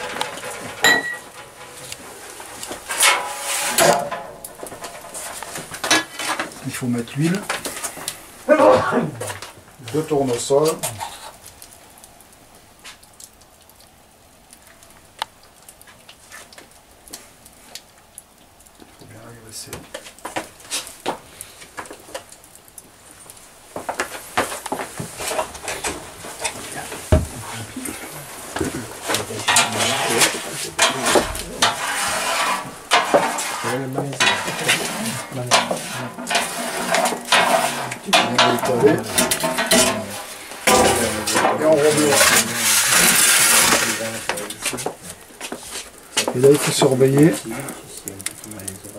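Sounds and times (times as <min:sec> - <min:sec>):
brush scraping metal pan: 0:00.0 - 0:08.0, 0:25.1 - 0:45.0
wood fire crackling: 0:00.0 - 0:48.9.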